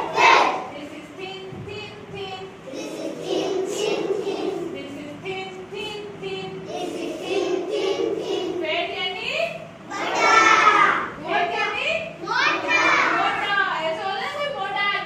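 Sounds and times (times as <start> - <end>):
children singing in unison: 0.0 - 0.7, 2.6 - 5.0, 6.5 - 8.6.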